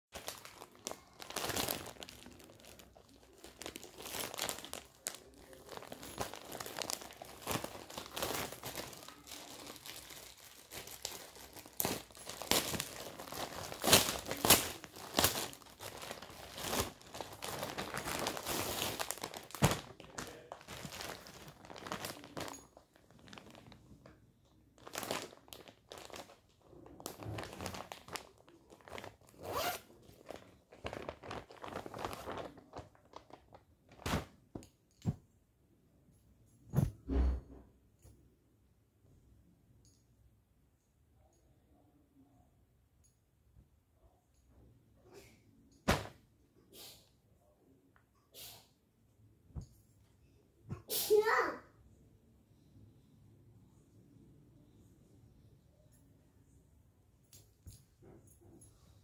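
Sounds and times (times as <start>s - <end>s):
plastic bag crinkling: 0.2s - 24.2s, 24.8s - 34.3s.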